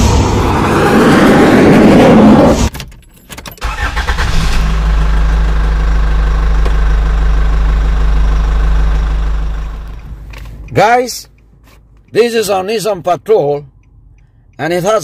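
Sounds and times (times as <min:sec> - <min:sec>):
car engine starting and idling: 0:02.6 - 0:12.4.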